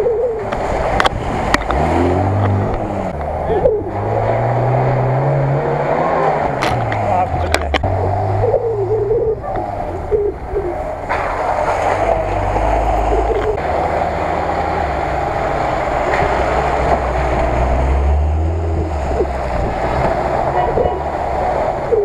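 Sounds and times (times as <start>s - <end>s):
vehicle engine at low speed: 0.0s - 22.0s
tyres splashing through mud: 10.8s - 21.9s.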